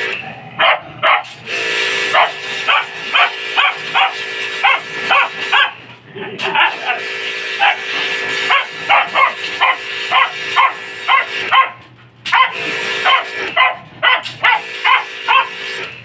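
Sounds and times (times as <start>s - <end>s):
dog yipping: 0.6s - 1.3s, 2.1s - 5.8s, 7.6s - 7.8s, 8.5s - 15.5s
hose spray hissing: 1.0s - 5.8s, 6.4s - 15.9s.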